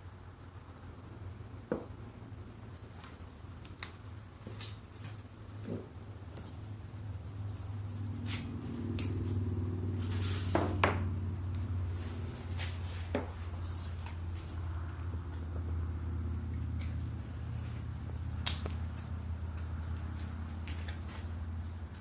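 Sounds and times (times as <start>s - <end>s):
low steady hum: 0.0s - 22.0s
rustling: 11.5s - 15.6s.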